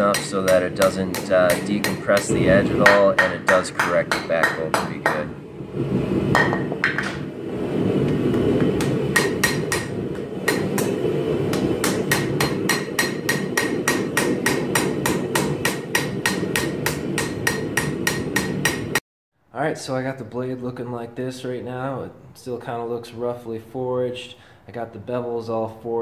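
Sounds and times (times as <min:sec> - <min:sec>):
hammer striking steel on anvil: 0:00.0 - 0:05.3, 0:08.8 - 0:19.0
low rush of noise: 0:00.0 - 0:20.4.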